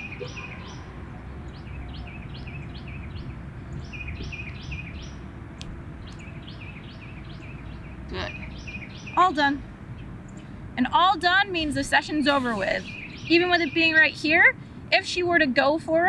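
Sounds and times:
low outdoor background noise: 0.0 - 16.0
songbird whistling: 12.4 - 14.2.

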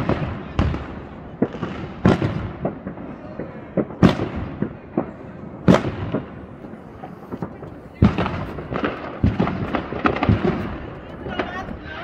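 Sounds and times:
firework pops and crackles: 0.0 - 12.0
fireworks bangs with echo: 0.0 - 12.0.

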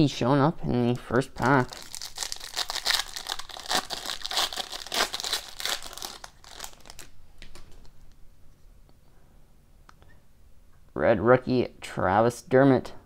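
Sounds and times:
foil wrapper crinkling and tearing: 1.4 - 7.8.

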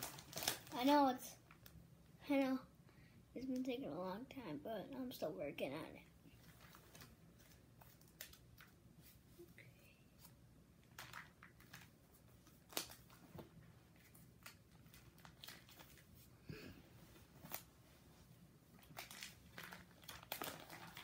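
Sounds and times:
plastic sleeves rustling: 0.0 - 1.8, 6.1 - 21.0.

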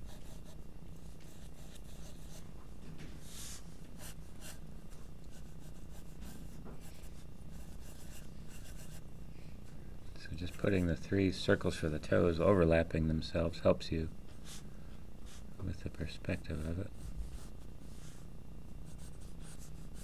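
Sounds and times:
pencil scratching on paper: 0.0 - 2.4, 5.3 - 9.0, 18.8 - 20.0.

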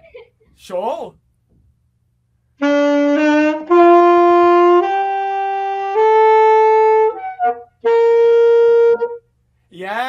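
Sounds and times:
saxophone playing: 2.6 - 9.3.

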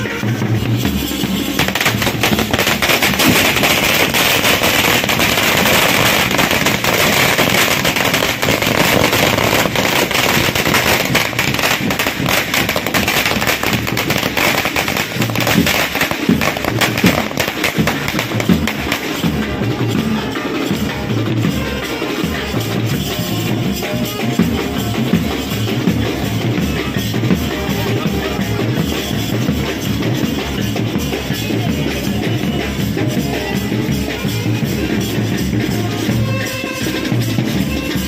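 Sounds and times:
firecrackers going off: 0.0 - 38.0
music playing: 0.0 - 38.0.

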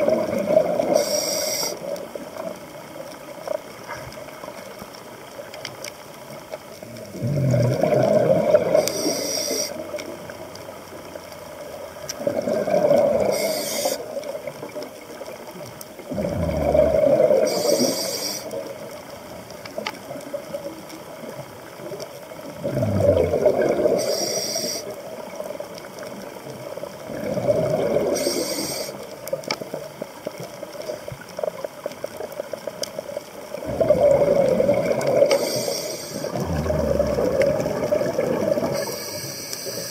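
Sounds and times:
exhaled bubbles gurgling: 0.0 - 39.9
regulator inhale hiss: 0.9 - 2.0, 8.7 - 10.0, 13.2 - 14.2, 17.4 - 18.7, 23.9 - 25.1, 28.0 - 29.2, 35.2 - 37.1, 38.6 - 39.9.

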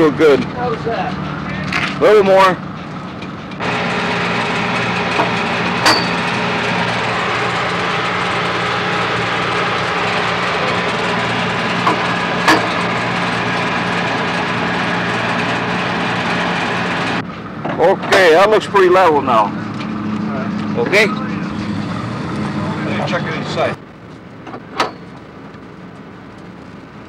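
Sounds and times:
machinery humming and hissing: 3.6 - 17.2.

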